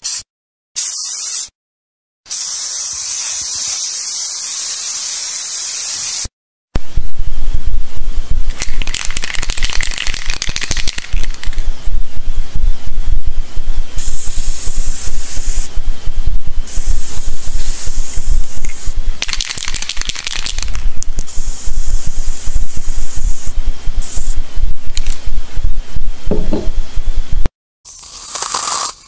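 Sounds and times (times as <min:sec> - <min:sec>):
spray can rattling: 0:08.5 - 0:11.6, 0:18.6 - 0:21.4
aerosol spray can hissing: 0:14.0 - 0:15.7, 0:16.7 - 0:24.4.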